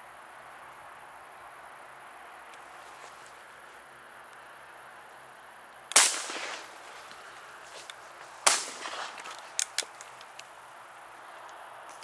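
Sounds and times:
shotgun shots with echo: 0:05.9 - 0:07.3, 0:08.4 - 0:09.6
sharp clicks: 0:05.9 - 0:10.5.

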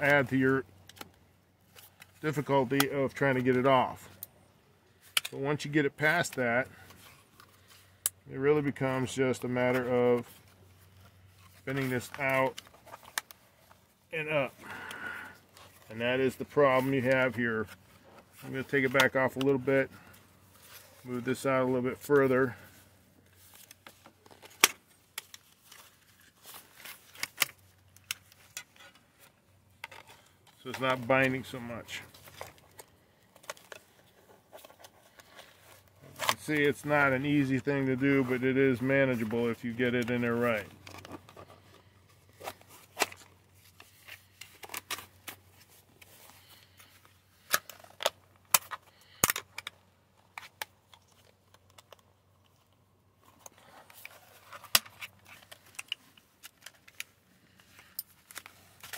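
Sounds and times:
plastic clicking and snapping: 0:47.5 - 0:49.8.

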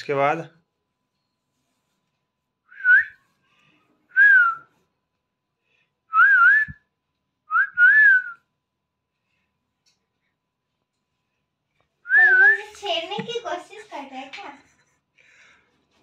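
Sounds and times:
person whistling a tune: 0:02.7 - 0:03.2, 0:04.2 - 0:04.7, 0:06.1 - 0:06.9, 0:07.5 - 0:08.4.

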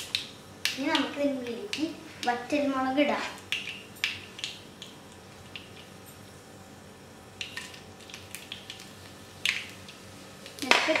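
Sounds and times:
mustard seeds popping in oil: 0:00.0 - 0:02.4, 0:03.4 - 0:06.0, 0:07.3 - 0:11.0.

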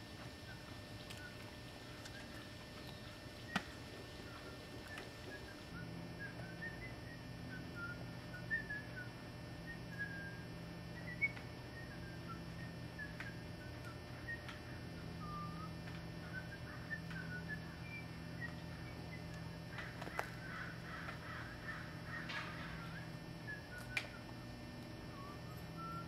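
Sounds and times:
steady low hum: 0:00.0 - 0:26.0
small birds chirping: 0:00.4 - 0:05.7.

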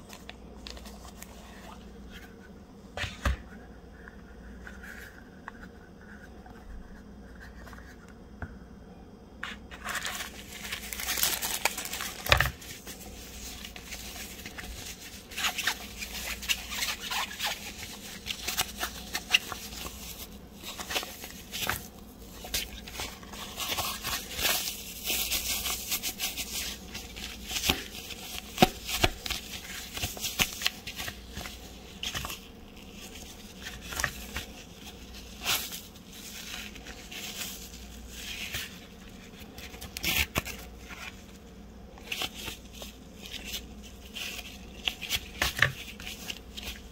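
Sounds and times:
fabric pouch rustling and crinkling: 0:09.7 - 0:46.9.

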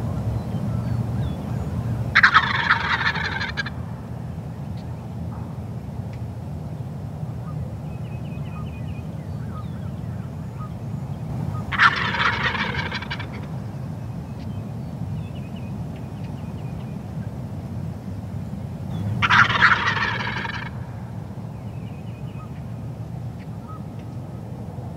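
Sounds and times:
turkey gobbling: 0:02.1 - 0:03.8, 0:11.5 - 0:13.5, 0:19.2 - 0:20.9.

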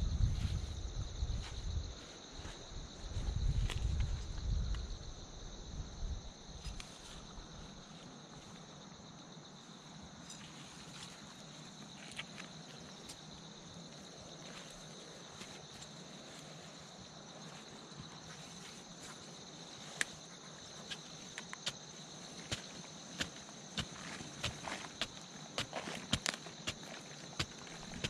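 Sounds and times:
insects chirring: 0:00.0 - 0:28.0
digging tool knocking into soil: 0:22.4 - 0:28.0.

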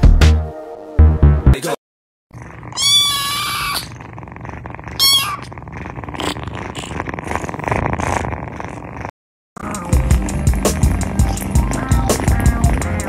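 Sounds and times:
cat purring at microphone: 0:02.4 - 0:13.0
kitten meowing: 0:02.7 - 0:04.0, 0:05.0 - 0:05.5.

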